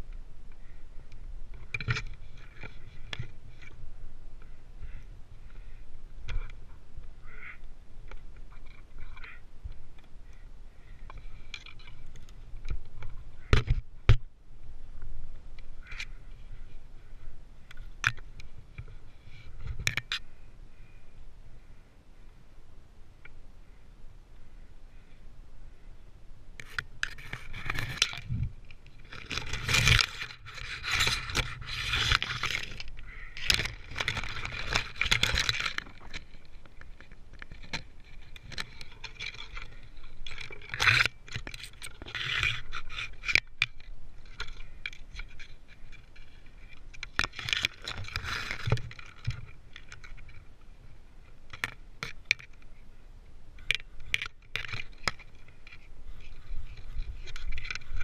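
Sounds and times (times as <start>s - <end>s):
scraping and rustling against bark: 0.0s - 21.7s, 26.6s - 53.0s, 53.6s - 58.0s
climbing gear clicks and jingles: 29.0s - 50.4s.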